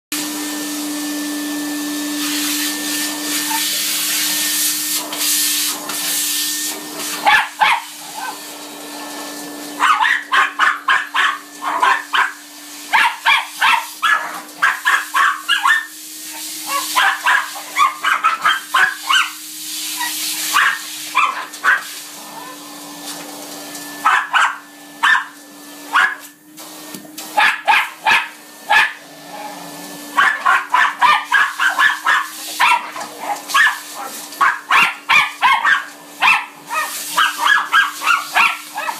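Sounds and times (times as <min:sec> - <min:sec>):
vacuum cleaner motor hum: 0:00.2 - 0:38.9
dogs barking: 0:07.2 - 0:08.4, 0:09.7 - 0:15.9, 0:16.6 - 0:19.4, 0:20.0 - 0:22.0, 0:24.0 - 0:26.3, 0:27.3 - 0:29.0, 0:30.1 - 0:38.9.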